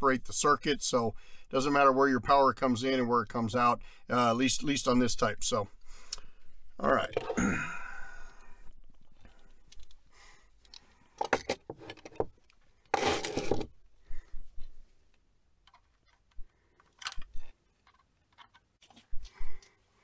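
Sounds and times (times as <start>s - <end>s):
rustling scrape: 12.9s - 13.7s.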